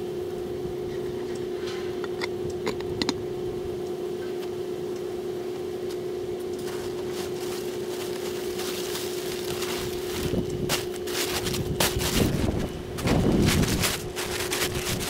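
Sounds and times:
steady hum: 0.0 - 15.0
plastic tarp rustling: 6.6 - 15.0.

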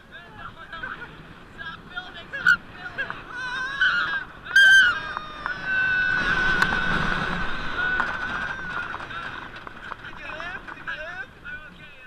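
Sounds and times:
roller coaster wind rush: 0.0 - 12.0
boy crying and screaming: 3.3 - 4.2.

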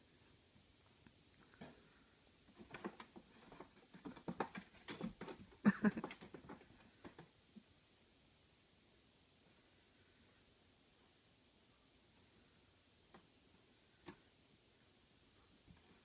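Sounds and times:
cat paws tapping and scratching: 2.5 - 7.3.

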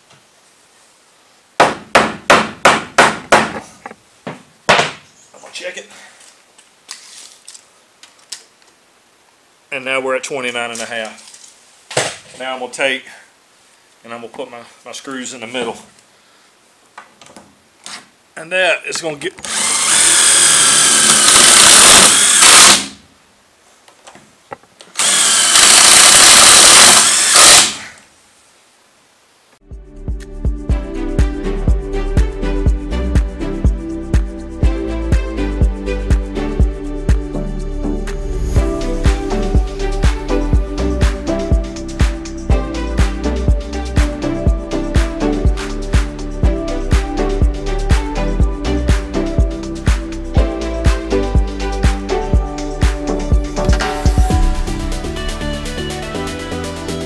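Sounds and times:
hammer striking wooden block: 1.6 - 3.6
power drill driving screws: 19.4 - 23.0, 24.9 - 27.9.

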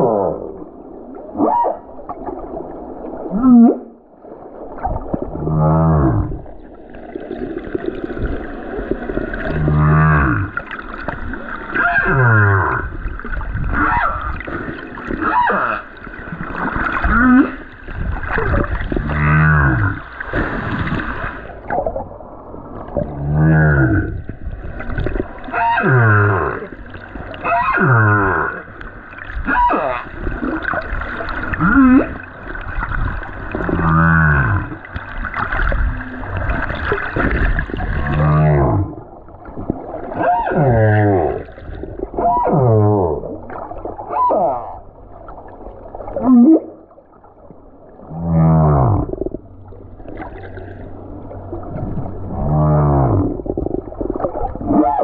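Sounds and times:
humpback whale singing underwater: 0.0 - 2.0, 13.6 - 16.1, 25.4 - 28.7, 29.4 - 30.8, 40.0 - 45.0, 46.1 - 46.9, 51.9 - 55.0.

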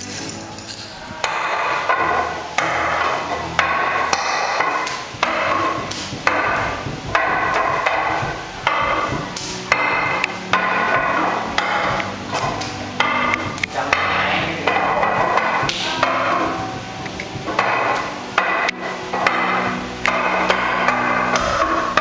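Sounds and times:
wooden dummy being struck: 0.9 - 22.0.

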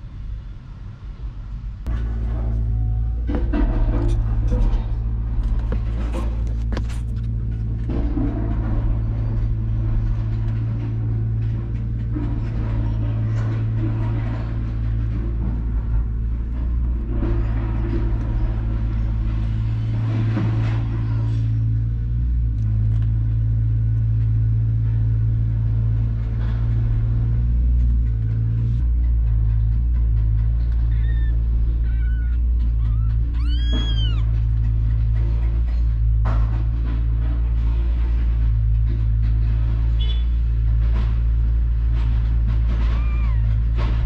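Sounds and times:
kittens purring: 29.9 - 36.0, 42.5 - 44.0.

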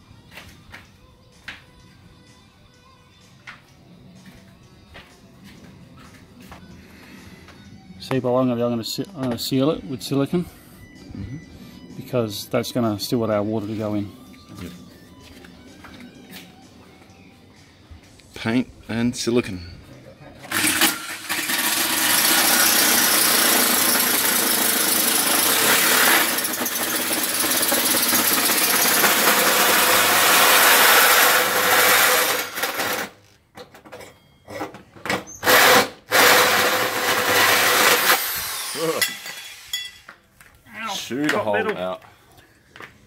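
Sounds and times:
electric drill cutting steel: 20.5 - 33.2, 35.4 - 40.2.

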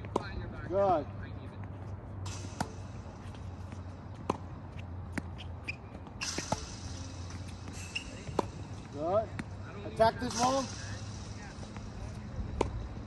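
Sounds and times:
tennis balls struck by rackets: 2.2 - 13.0
shoe squeak on court: 5.3 - 8.7.

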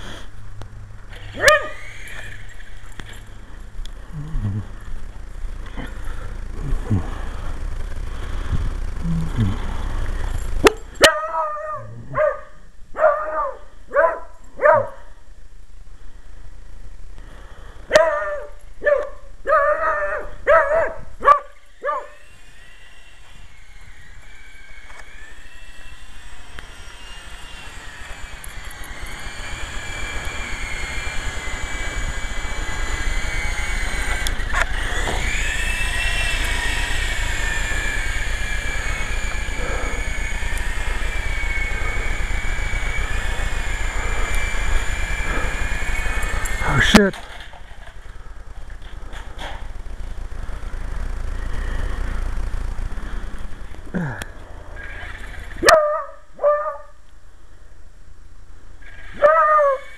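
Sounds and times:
toy helicopter rotor whine: 1.0 - 14.0, 17.4 - 57.1, 58.7 - 59.9
dog barking: 1.4 - 1.8, 11.0 - 15.1, 17.9 - 22.2, 55.6 - 56.9, 59.2 - 59.9.

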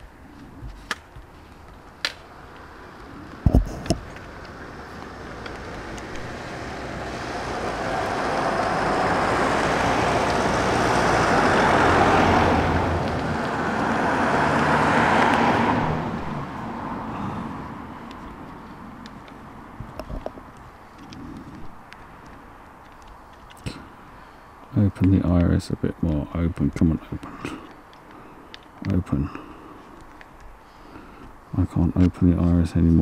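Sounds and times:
vehicle passing: 2.2 - 24.9.

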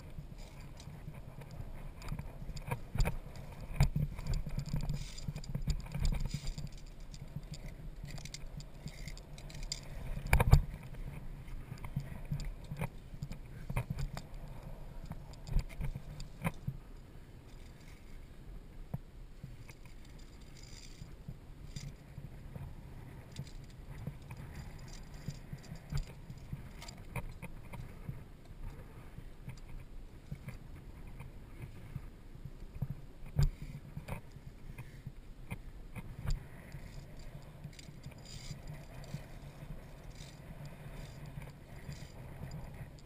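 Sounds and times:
steady low rumble: 0.0 - 43.0
metal carabiners clinking: 0.4 - 10.5, 19.8 - 22.0, 23.3 - 27.1, 36.7 - 42.7.

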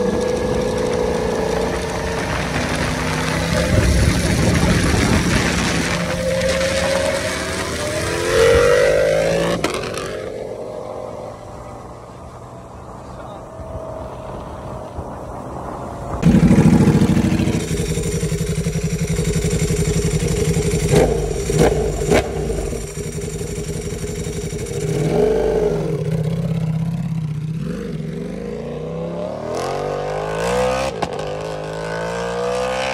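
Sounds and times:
exhaust cracks: 0.0 - 10.3, 14.3 - 27.4
motorcycle engine revving: 0.0 - 12.0, 13.4 - 32.9.

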